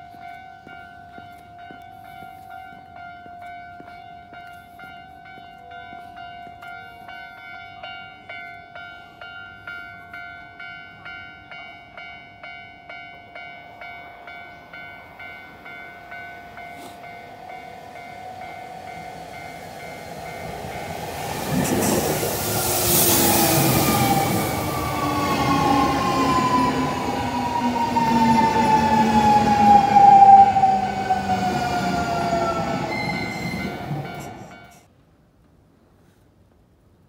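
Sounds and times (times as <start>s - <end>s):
level crossing bell ringing: 0.0s - 29.6s
train rumbling past: 11.2s - 34.9s.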